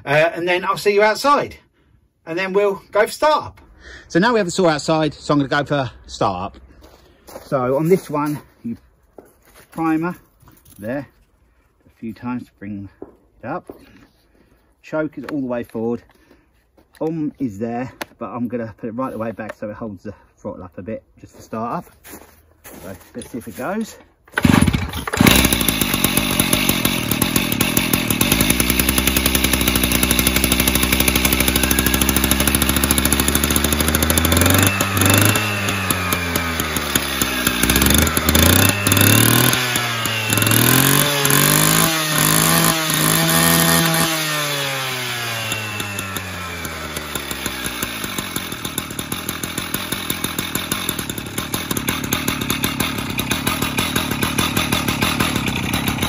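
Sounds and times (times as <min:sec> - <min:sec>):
cut-off saw engine idling and revving: 0:24.4 - 0:56.0.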